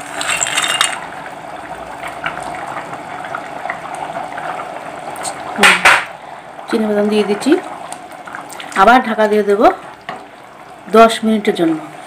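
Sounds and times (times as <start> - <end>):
rice bubbling in boiling water: 0.0 - 12.0.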